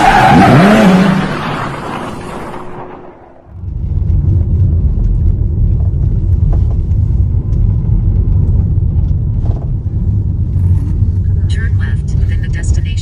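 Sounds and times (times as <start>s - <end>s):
road and engine rumble in car: 3.5s - 13.0s.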